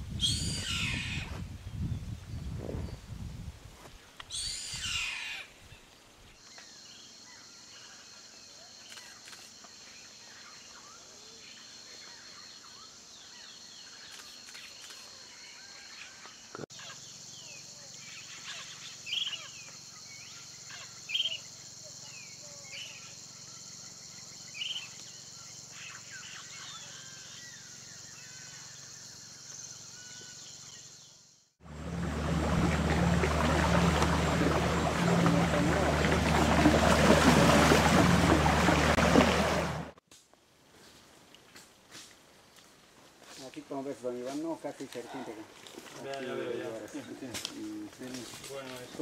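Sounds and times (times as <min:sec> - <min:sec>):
bird chirps and calls: 0:00.2 - 0:01.3.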